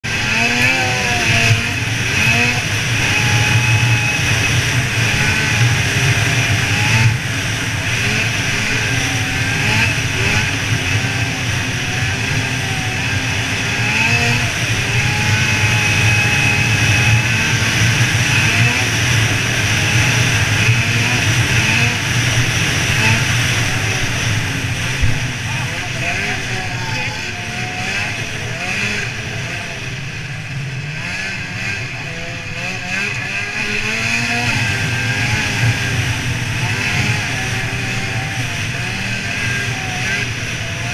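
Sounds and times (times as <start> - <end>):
snowmobile engine running: 0.0 - 40.9
steady rushing noise: 0.0 - 40.9.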